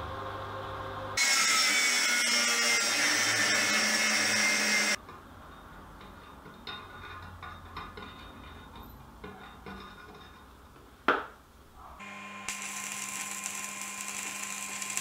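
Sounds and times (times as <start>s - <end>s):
angle grinder grinding steel: 1.2s - 5.0s, 12.0s - 15.0s.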